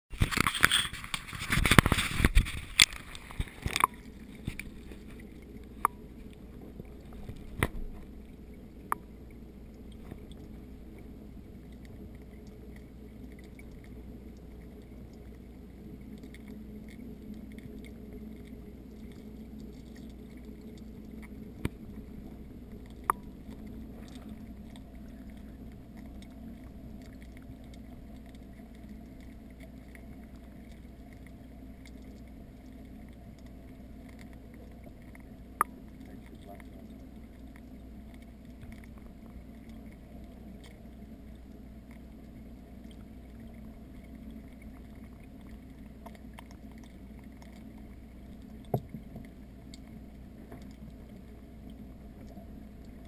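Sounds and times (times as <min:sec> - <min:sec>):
muffled underwater noise: 0:00.1 - 0:53.0
water splashing and knocking: 0:48.7 - 0:49.3.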